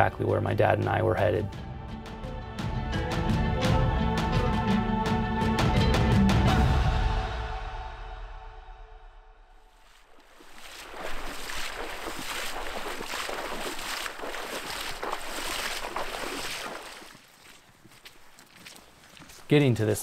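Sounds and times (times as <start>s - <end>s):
seawater splashing from wading: 9.8s - 18.4s.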